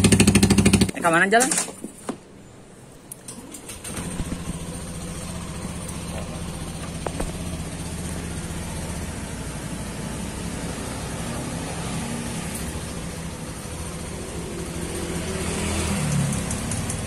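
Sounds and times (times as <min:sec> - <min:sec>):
motorcycle engine idling: 0:00.0 - 0:00.9, 0:03.8 - 0:11.4, 0:12.2 - 0:17.0.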